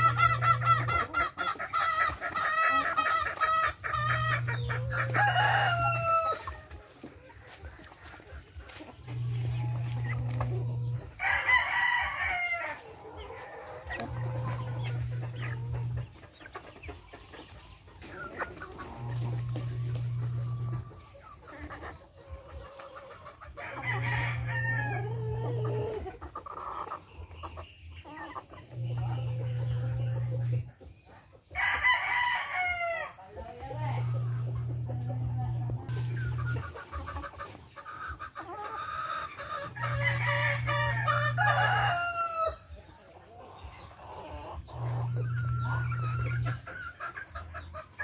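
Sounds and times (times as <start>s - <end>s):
chickens clucking: 0.0s - 48.0s
rooster crowing: 4.0s - 6.6s, 11.2s - 12.8s, 23.6s - 25.7s, 39.6s - 42.6s
low steady hum: 7.8s - 11.5s, 12.2s - 22.3s, 28.6s - 30.8s, 33.4s - 37.2s, 39.6s - 42.8s, 44.5s - 46.9s.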